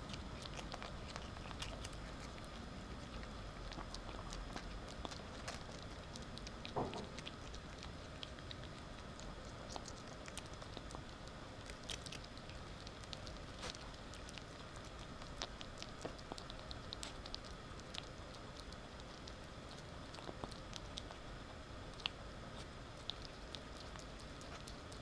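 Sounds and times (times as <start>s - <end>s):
ferret chewing crunchy treat: 0.0s - 25.0s.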